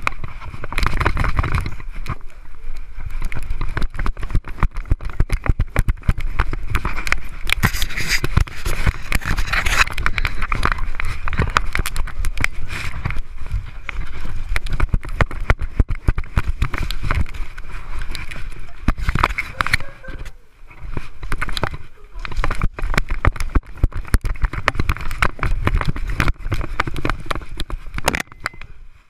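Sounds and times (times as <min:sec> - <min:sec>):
camera rubbing against fur: 0:03.0 - 0:28.2.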